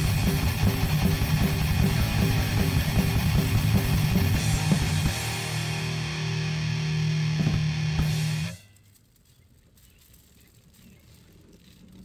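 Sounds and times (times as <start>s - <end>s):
electric guitar: 0.0s - 8.6s
steady drum beat: 0.0s - 8.6s.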